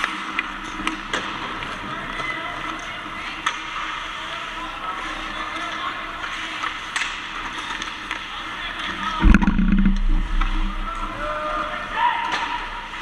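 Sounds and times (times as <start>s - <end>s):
hockey sticks clattering: 5.3s - 9.3s.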